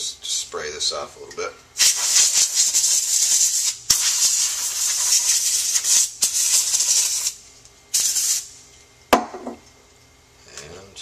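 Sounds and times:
compressed air hissing: 0:01.8 - 0:08.6.

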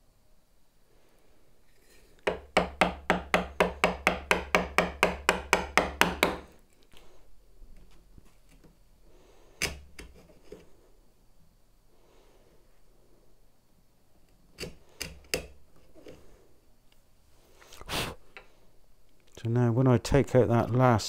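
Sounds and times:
mallet striking chisel: 0:02.2 - 0:06.5.

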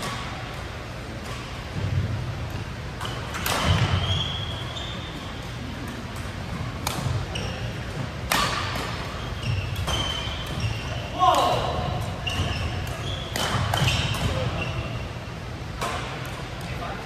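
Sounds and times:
shoes squeaking on court: 0:01.2 - 0:15.2
racket hitting shuttlecock: 0:02.4 - 0:04.4, 0:05.8 - 0:07.6, 0:08.2 - 0:14.5, 0:15.7 - 0:16.5.

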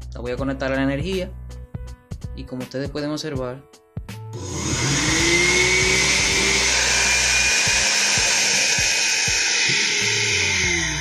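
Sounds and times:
blender motor whining: 0:04.4 - 0:11.0.

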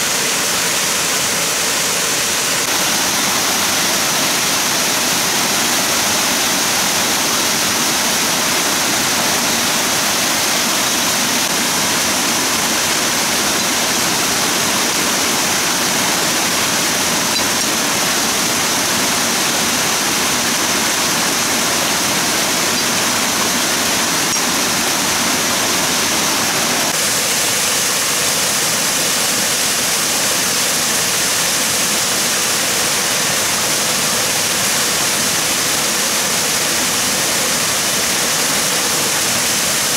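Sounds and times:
water rushing: 0:00.0 - 0:39.9.

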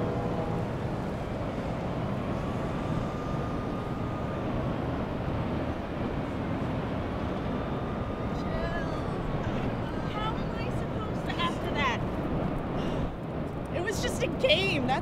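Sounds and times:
faint high whine: 0:00.0 - 0:12.0
traffic rumble: 0:00.0 - 0:15.0.

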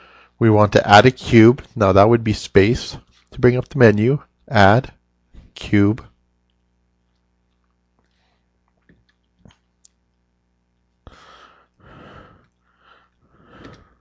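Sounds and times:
person breathing quietly: 0:00.0 - 0:00.4, 0:11.0 - 0:14.0.

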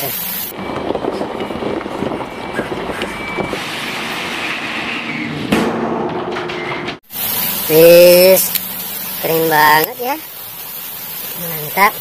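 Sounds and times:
truck engine running: 0:00.6 - 0:07.0.

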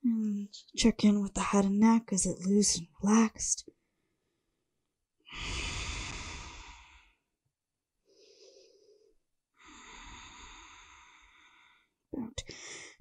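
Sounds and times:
woman breathing slowly: 0:05.3 - 0:07.3, 0:08.0 - 0:13.0.

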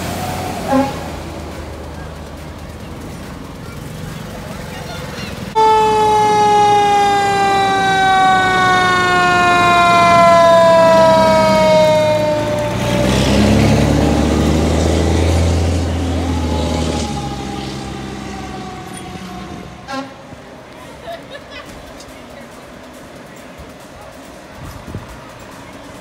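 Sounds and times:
fire truck siren: 0:00.0 - 0:01.8, 0:05.5 - 0:20.2
truck engine rumbling: 0:00.0 - 0:26.0.

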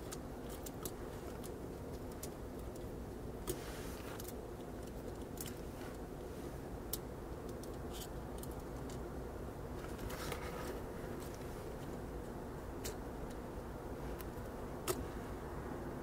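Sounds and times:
small clicks and taps: 0:00.0 - 0:03.6, 0:06.9 - 0:09.0
steady low hum: 0:00.0 - 0:16.0.

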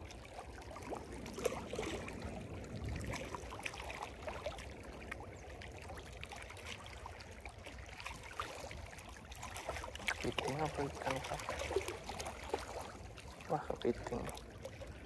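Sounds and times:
low wind rumble: 0:00.0 - 0:06.0
small splashes: 0:00.0 - 0:15.0
waves lapping on rocks: 0:00.0 - 0:15.0.

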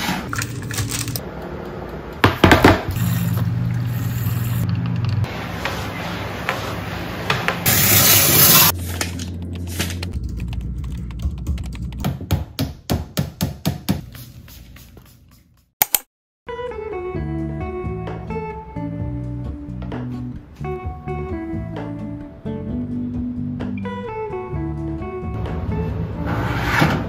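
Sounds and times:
steam cleaner hissing: 0:07.6 - 0:08.7.

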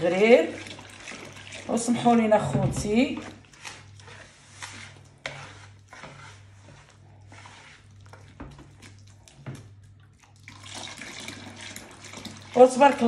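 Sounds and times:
whisk scraping batter in bowl: 0:00.1 - 0:09.8.

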